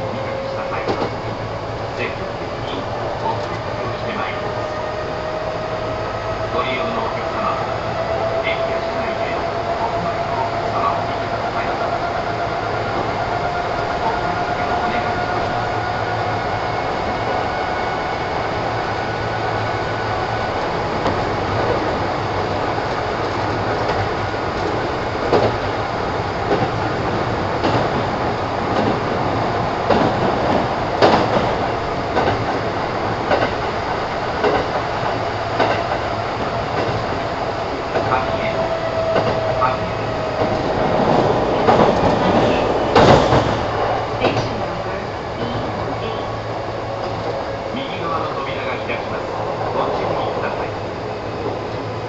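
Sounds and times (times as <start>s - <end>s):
steady train whine: 0.0s - 52.0s
train wheels rumbling on rail: 0.0s - 52.0s
rail-joint clicks: 0.3s - 1.2s, 2.6s - 4.5s, 22.8s - 25.8s, 26.4s - 26.9s, 27.6s - 28.0s, 29.8s - 37.2s, 37.8s - 46.3s.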